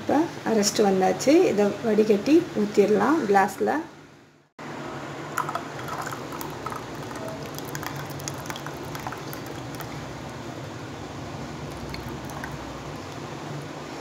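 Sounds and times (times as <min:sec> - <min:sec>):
juice pouring through strainer: 0:05.4 - 0:10.4, 0:11.5 - 0:13.3.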